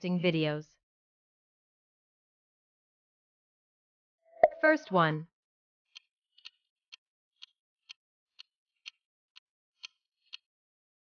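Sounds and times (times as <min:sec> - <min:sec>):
clock ticking: 0:05.9 - 0:09.0, 0:09.8 - 0:10.5.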